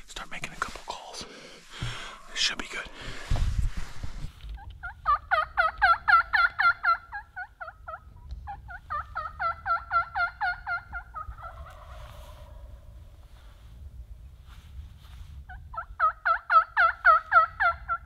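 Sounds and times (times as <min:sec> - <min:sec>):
turkey yelping: 0:04.6 - 0:12.8, 0:15.5 - 0:18.0.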